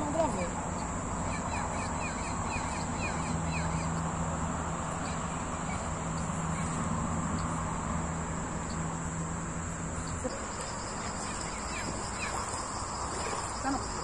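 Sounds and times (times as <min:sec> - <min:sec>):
high insect drone: 0:00.0 - 0:14.0
low steady hum: 0:00.0 - 0:14.0
bird chirping: 0:00.1 - 0:04.1, 0:10.0 - 0:14.0.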